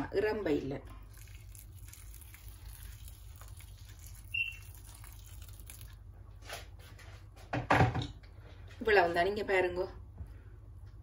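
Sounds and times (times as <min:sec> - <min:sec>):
hot water pouring from kettle: 0:01.0 - 0:06.0.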